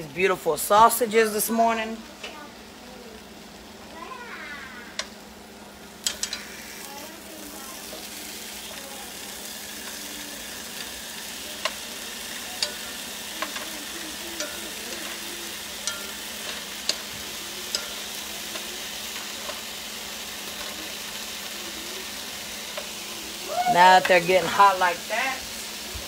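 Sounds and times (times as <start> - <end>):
sausages sizzling in frying pan: 0.0 - 26.0
metal tongs clicking: 6.0 - 6.5, 15.8 - 17.1, 17.7 - 19.6.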